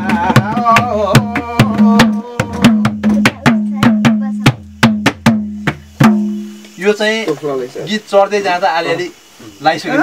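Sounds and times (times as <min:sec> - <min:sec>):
man singing: 0:00.0 - 0:03.2
hand drum beating folk rhythm: 0:00.0 - 0:07.4.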